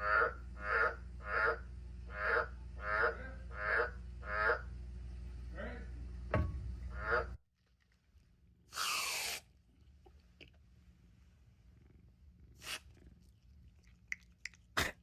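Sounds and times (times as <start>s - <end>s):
frog croaking: 0.0s - 4.7s, 6.9s - 7.4s.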